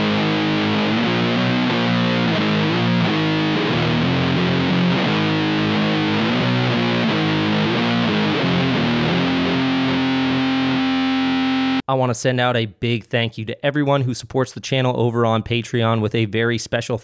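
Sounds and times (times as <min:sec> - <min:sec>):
fuzzed electric guitar riff: 0:00.0 - 0:11.9.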